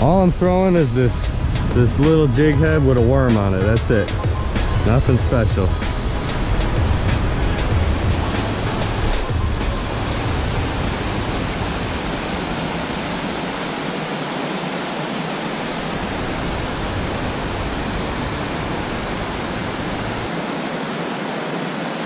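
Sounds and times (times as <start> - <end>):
water rushing over dam spillway: 0.0 - 22.0.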